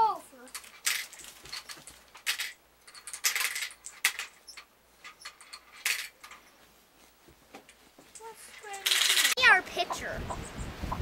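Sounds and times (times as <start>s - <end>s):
marbles rattling down plastic ramps: 0.5s - 4.6s, 8.6s - 9.4s.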